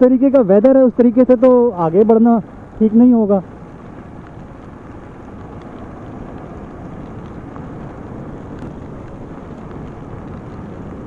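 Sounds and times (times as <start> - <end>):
heavy rain: 0.0 - 11.0
tyre spray on wet road: 2.4 - 11.0.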